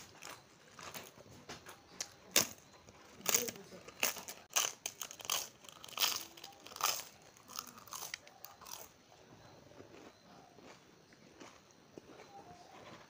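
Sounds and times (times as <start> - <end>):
crisp wafer crunching: 2.0 - 8.9.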